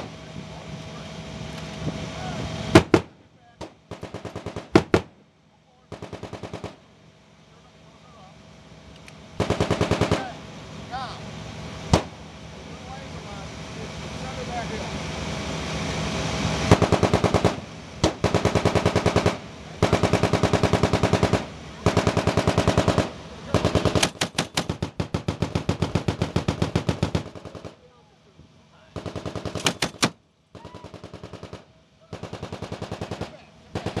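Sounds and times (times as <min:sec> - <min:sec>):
grenade machine gun bursts: 0:02.7 - 0:05.1, 0:05.9 - 0:06.8, 0:09.4 - 0:10.4, 0:16.7 - 0:27.8, 0:28.9 - 0:34.0.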